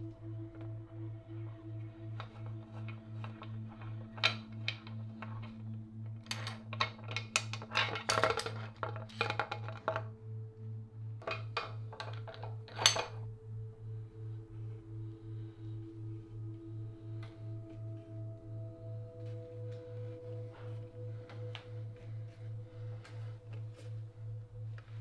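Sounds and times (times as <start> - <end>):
background music with pulsing beat: 0.0 - 25.0
metallic clicks and clinks: 6.2 - 10.0.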